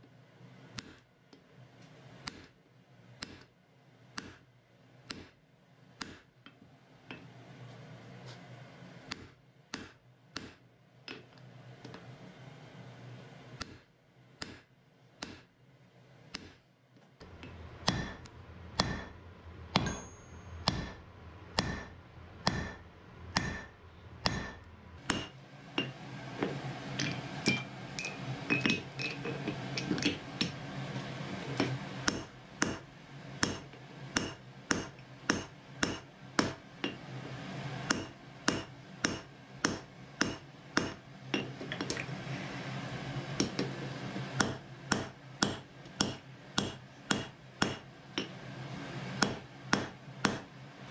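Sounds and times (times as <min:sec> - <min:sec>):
hammer striking iron on anvil: 0:17.8 - 0:26.0, 0:27.0 - 0:30.6, 0:32.0 - 0:37.0, 0:37.9 - 0:41.5, 0:44.4 - 0:48.4, 0:49.2 - 0:50.5
light metallic clinks: 0:19.8 - 0:20.6, 0:27.0 - 0:30.2.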